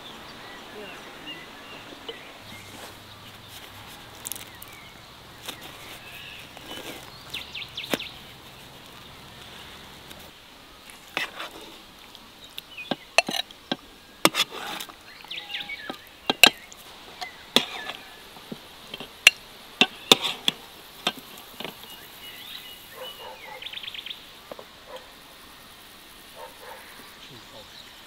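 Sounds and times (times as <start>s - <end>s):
birds chirping: 0.0s - 28.0s
bird trill: 15.1s - 18.3s
sharp clicks and knocks: 15.8s - 21.8s.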